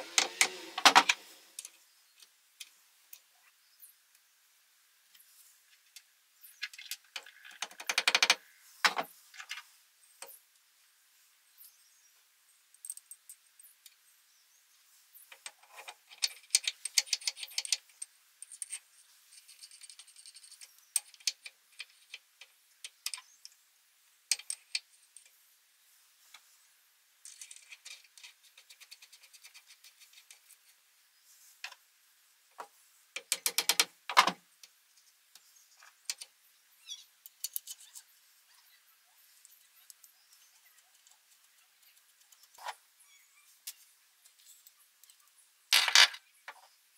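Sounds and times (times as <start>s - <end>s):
metal clicks and rattles: 15.3s - 22.2s, 33.2s - 34.4s, 37.2s - 38.0s.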